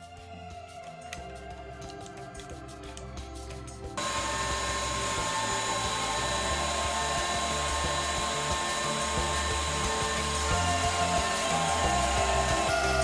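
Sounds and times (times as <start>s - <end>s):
background music: 0.0s - 13.0s
table saw cutting wood: 4.0s - 13.0s.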